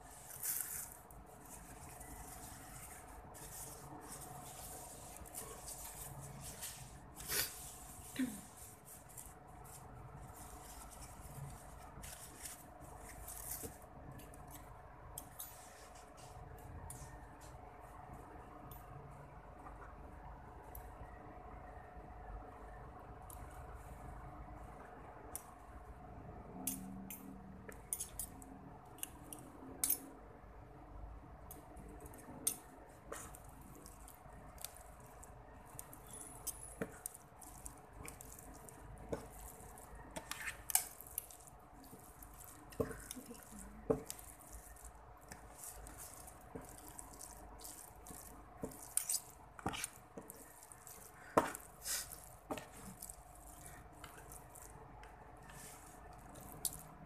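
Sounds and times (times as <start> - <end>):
wet sticky mixing sounds: 0.0 - 18.4, 30.9 - 57.0
faint steady hum: 0.0 - 57.0.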